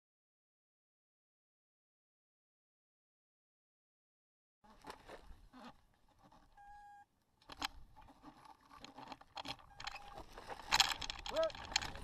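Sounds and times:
short electronic beep: 0:06.6 - 0:07.1
faint clicks and knocks: 0:07.4 - 0:12.0.

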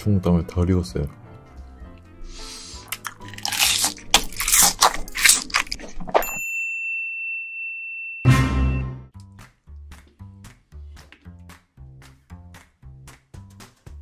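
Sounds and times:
soft background music: 0:00.0 - 0:05.7
crunchy chewing: 0:02.4 - 0:06.2
high-pitched electronic beep: 0:08.2 - 0:09.0.

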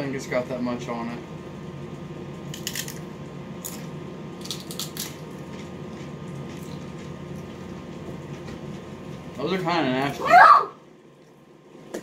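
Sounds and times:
chips crunching: 0:02.5 - 0:07.5
quiet chewing: 0:03.6 - 0:09.2.

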